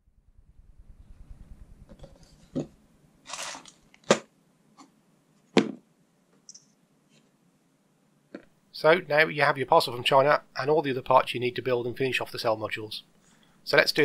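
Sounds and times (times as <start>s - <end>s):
plastic bag crinkle: 3.2s - 4.2s.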